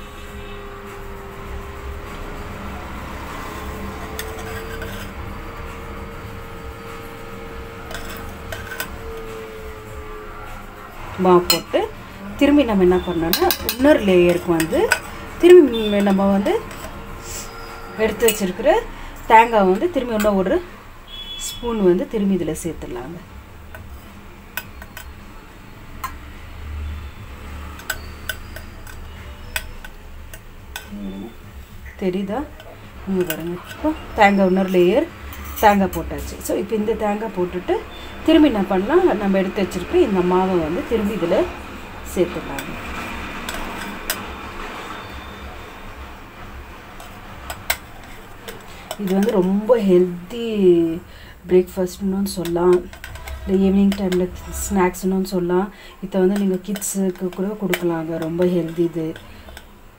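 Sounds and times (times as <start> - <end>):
low hum: 0.0 - 51.0
spoon scraping flour in metal bowl: 2.0 - 9.7, 11.4 - 18.9, 19.5 - 22.0, 23.7 - 25.2, 27.7 - 51.0, 51.6 - 55.4, 56.1 - 59.8
spoon clinking on metal: 3.8 - 5.2, 6.8 - 9.4, 12.9 - 18.6, 23.7 - 25.2, 26.0 - 26.3, 27.7 - 31.3, 32.4 - 36.2, 42.3 - 44.3, 47.0 - 49.7, 51.9 - 54.5, 56.2 - 59.7
spoon clinking on steel tube: 13.0 - 15.1, 27.8 - 31.3.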